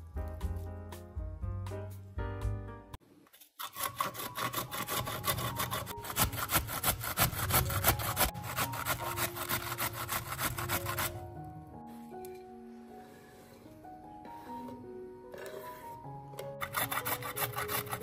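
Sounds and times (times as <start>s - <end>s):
cabbage rasping on metal grater: 3.6s - 11.2s, 16.6s - 18.0s.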